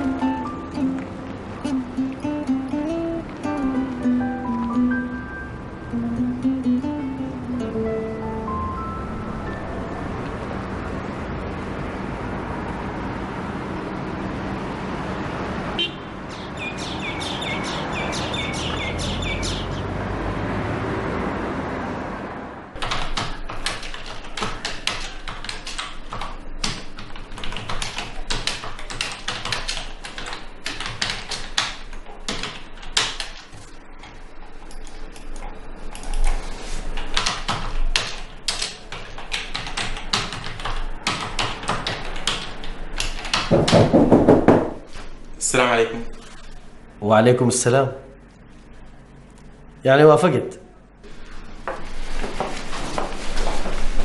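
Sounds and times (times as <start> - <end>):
high bird chirps: 16.3 - 19.9
computer keyboard typing: 22.8 - 43.9.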